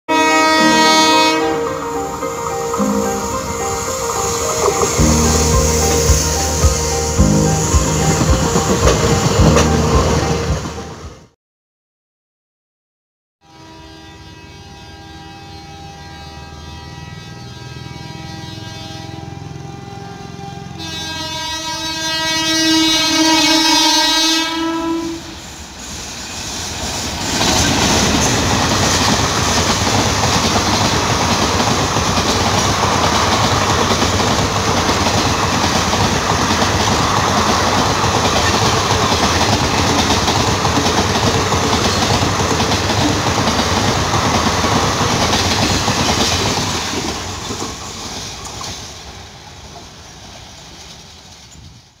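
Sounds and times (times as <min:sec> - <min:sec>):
locomotive twin-tone horn: 0:00.1 - 0:11.2, 0:13.4 - 0:25.4
train wheels clattering: 0:26.4 - 0:49.0.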